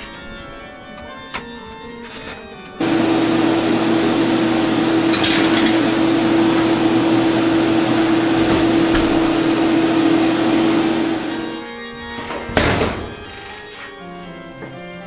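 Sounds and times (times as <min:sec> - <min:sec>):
fan humming: 0:02.8 - 0:11.7.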